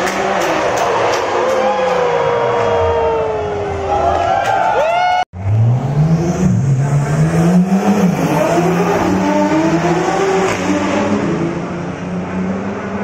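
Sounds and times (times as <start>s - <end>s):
race car engine accelerating: 5.4s - 13.0s.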